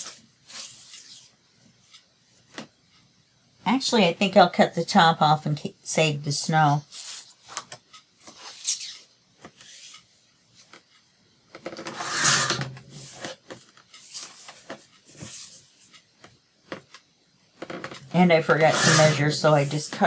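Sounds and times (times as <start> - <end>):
paper being cut: 12.0 - 12.6, 18.6 - 19.8.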